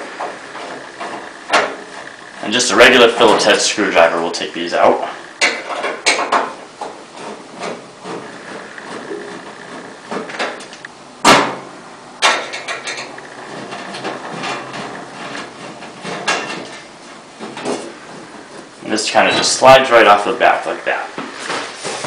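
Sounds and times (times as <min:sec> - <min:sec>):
sharp knock on sheet metal: 0:11.2 - 0:11.6.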